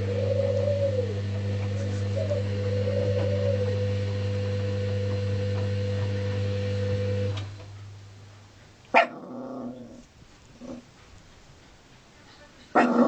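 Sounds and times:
washing machine motor humming: 0:00.0 - 0:11.6
small dog barking and growling: 0:08.9 - 0:10.9, 0:12.7 - 0:13.0.

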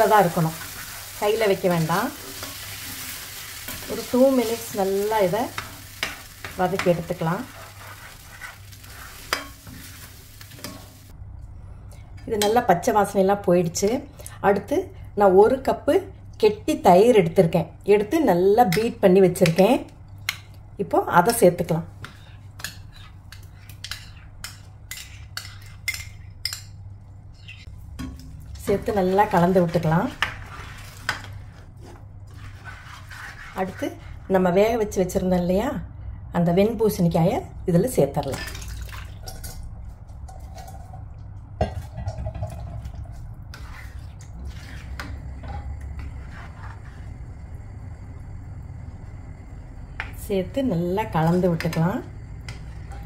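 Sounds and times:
spatula stirring thick gravy: 0:05.6 - 0:09.5, 0:29.0 - 0:34.3, 0:43.5 - 0:45.1
spatula scraping metal pan: 0:05.6 - 0:09.9, 0:22.0 - 0:26.0, 0:28.8 - 0:34.2, 0:43.5 - 0:47.1
steady low rumble: 0:45.1 - 0:53.0.

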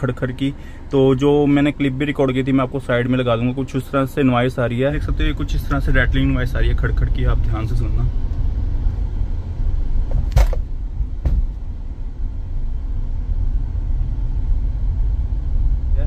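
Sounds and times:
low road rumble: 0:00.0 - 0:16.0
dashboard rattling clicks: 0:10.1 - 0:11.5.

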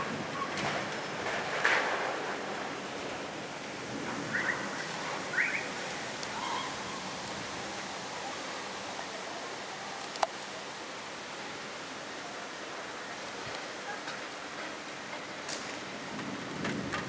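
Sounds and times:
heavy rain pouring: 0:00.0 - 0:17.0.

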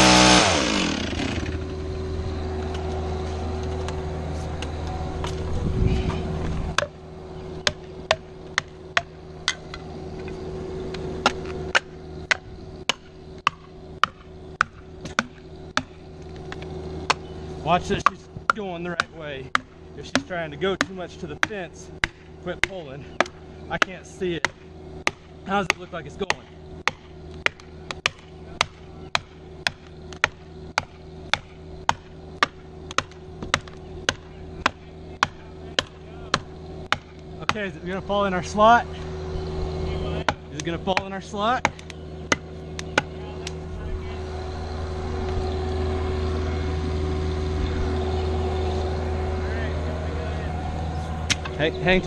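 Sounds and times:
steady low hum: 0:00.0 - 0:52.0
sledgehammer striking wedges: 0:06.7 - 0:07.0, 0:07.6 - 0:09.7, 0:11.2 - 0:16.0, 0:17.0 - 0:37.8, 0:40.2 - 0:43.2.

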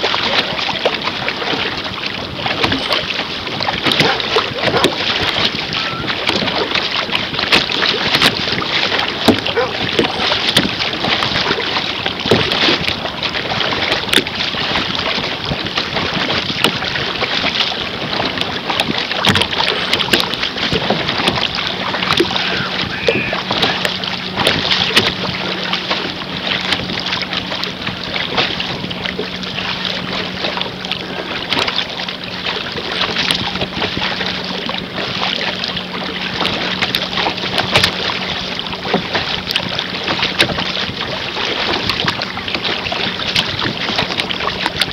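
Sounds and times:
water splashing against canoe hull: 0:00.0 - 0:44.9
wind on microphone: 0:00.0 - 0:44.9.

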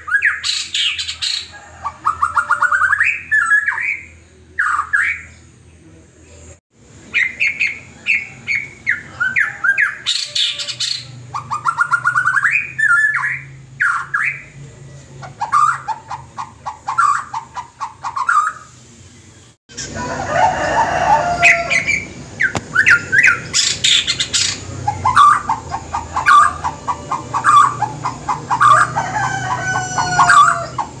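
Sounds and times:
bird imitating hen cackling: 0:00.1 - 0:04.0, 0:07.2 - 0:14.4, 0:15.2 - 0:18.7, 0:19.7 - 0:31.0
bird singing whistles and chirps: 0:21.8 - 0:25.6.

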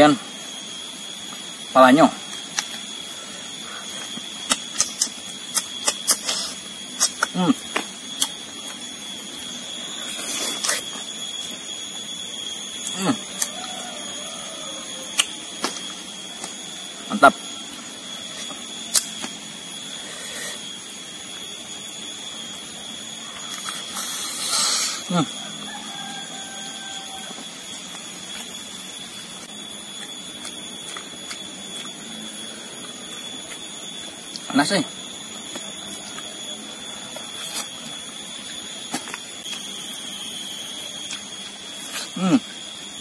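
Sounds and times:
steady hiss: 0:00.0 - 0:25.5
insects droning: 0:00.0 - 0:43.0
chewing clicks: 0:03.9 - 0:08.8, 0:15.1 - 0:16.6, 0:29.9 - 0:32.2.

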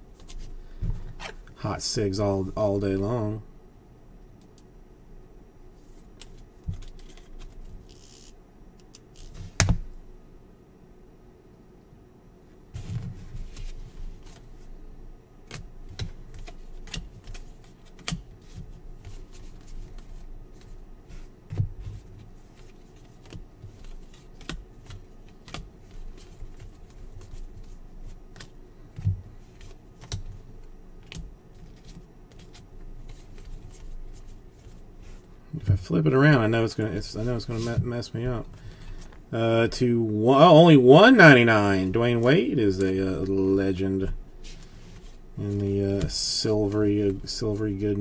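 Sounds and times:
cards flipping and clicking: 0:06.2 - 0:09.7, 0:15.5 - 0:18.2.

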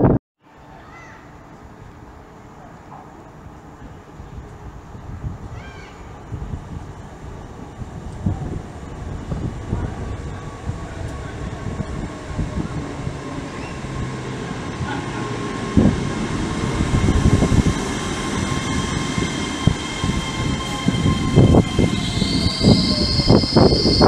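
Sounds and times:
train rumble passing: 0:06.1 - 0:24.0
high wheel squeal: 0:13.0 - 0:24.0.

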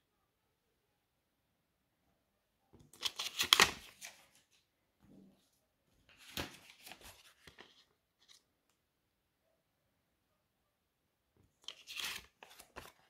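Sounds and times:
banknote rustling and crinkling: 0:02.8 - 0:04.6, 0:06.0 - 0:08.5, 0:11.6 - 0:13.0.

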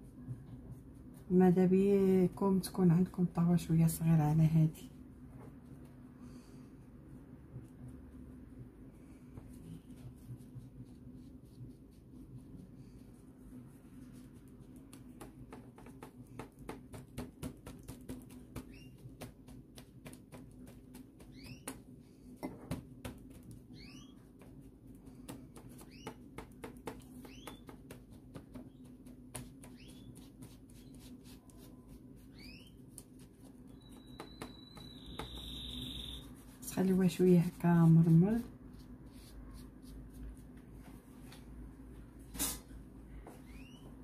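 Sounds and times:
low steady hum: 0:00.0 - 0:44.0
fingers patting crumb base: 0:14.4 - 0:23.7, 0:24.3 - 0:32.2.

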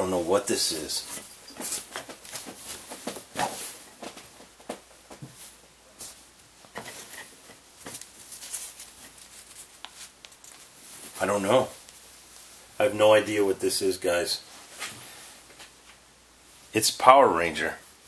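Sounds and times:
fabric rustling: 0:00.2 - 0:12.8.

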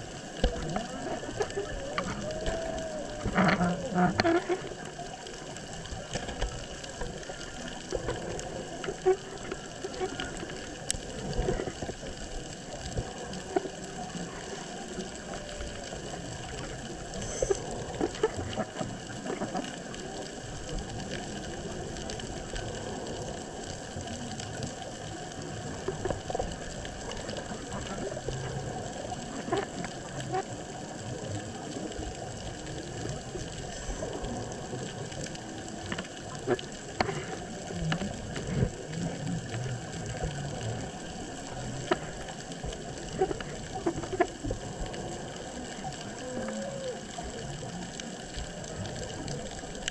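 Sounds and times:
crackle of clicks and pops: 0:00.0 - 0:49.9
underwater hiss: 0:16.6 - 0:18.0.

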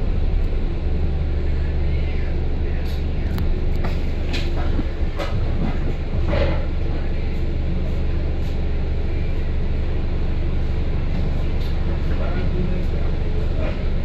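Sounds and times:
bus engine drone: 0:00.0 - 0:14.0
road rumble: 0:00.0 - 0:14.0
rattles and knocks: 0:03.8 - 0:06.8.

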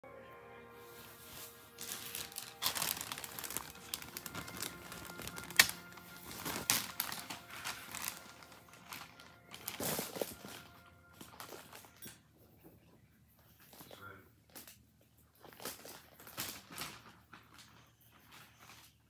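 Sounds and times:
rabbit rustling and crinkling: 0:00.8 - 0:19.0.

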